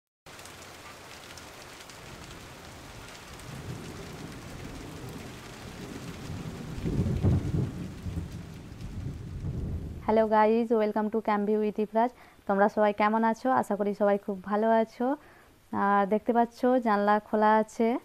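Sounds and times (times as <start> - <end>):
rolling thunder rumble: 0.3 - 10.4
steady rain falling: 0.3 - 12.5.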